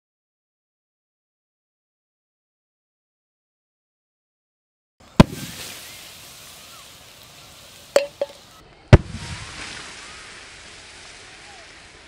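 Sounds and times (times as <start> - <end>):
bottles bursting with bangs: 5.2 - 10.2.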